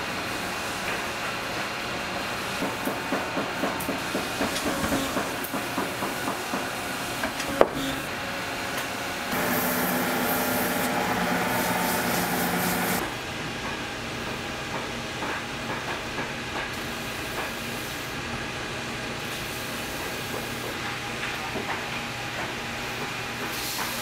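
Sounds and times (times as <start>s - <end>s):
motor hum: 9.3s - 13.0s.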